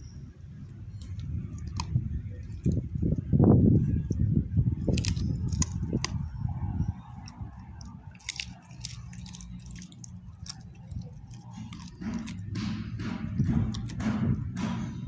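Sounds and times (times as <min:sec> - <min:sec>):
low rumble: 0:00.0 - 0:15.0
dog chewing and crunching bone: 0:00.8 - 0:04.2, 0:04.8 - 0:15.0
teeth cracking on bone: 0:00.9 - 0:03.3, 0:04.8 - 0:06.4, 0:07.0 - 0:14.7.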